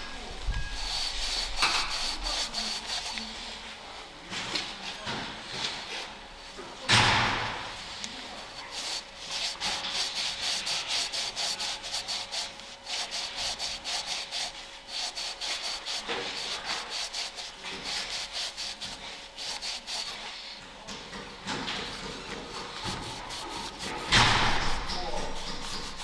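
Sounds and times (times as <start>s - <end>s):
scouring pad scrubbing metal: 0.0s - 3.6s, 8.2s - 21.2s, 21.8s - 26.0s.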